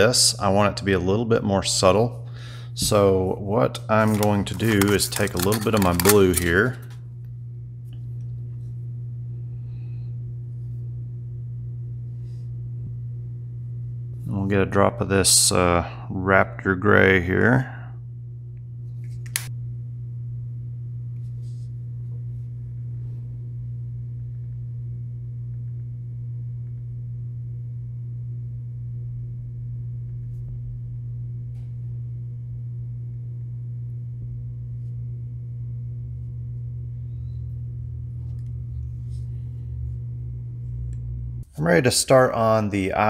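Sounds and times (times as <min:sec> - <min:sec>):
steady low hum: 0:00.0 - 0:43.0
sharp click: 0:19.3 - 0:19.5.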